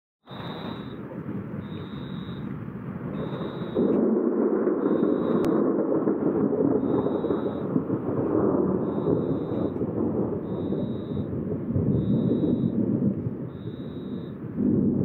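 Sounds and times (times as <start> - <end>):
thunder rumbling: 0.3 - 15.0.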